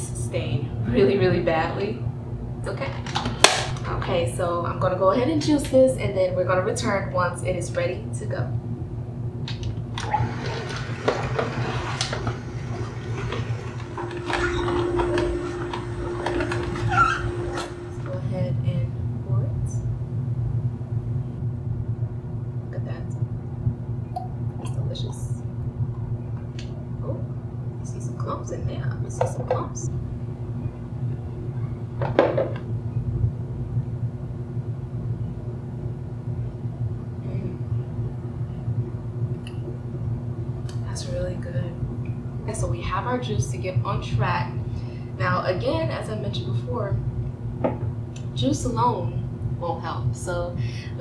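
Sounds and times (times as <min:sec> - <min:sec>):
steady low hum: 0:00.0 - 0:51.0
juicer crushing with cracks: 0:03.1 - 0:03.8, 0:09.5 - 0:16.9
juicer motor hum: 0:09.4 - 0:18.4.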